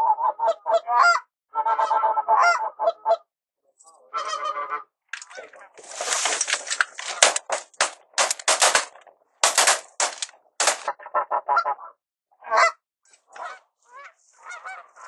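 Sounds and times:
geese honking: 4.2 - 8.9, 13.3 - 15.0.

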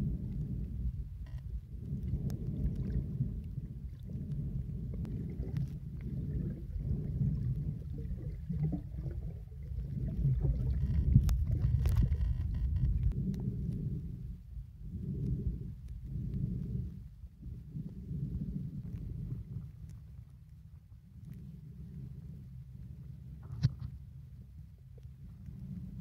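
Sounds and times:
muffled underwater rumble: 0.0 - 26.0
faint clicks: 1.2 - 3.6, 10.5 - 13.9, 15.2 - 17.0, 19.7 - 22.1, 24.9 - 25.8.

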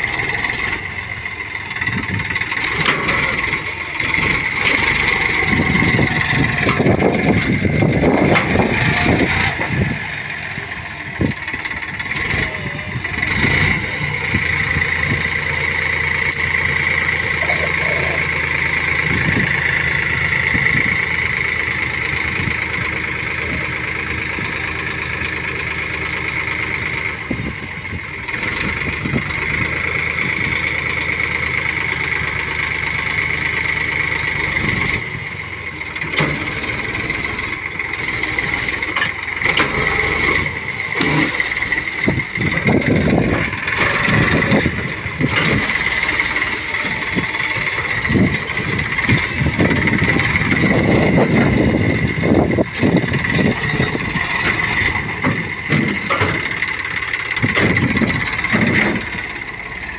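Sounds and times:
diesel tractor engine whining: 0.0 - 59.9
knocks and rattles: 52.5 - 59.5.

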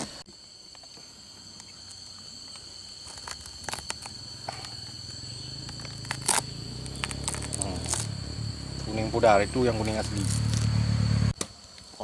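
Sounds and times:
high insect drone: 0.0 - 12.0
husk cracking: 1.8 - 8.9.

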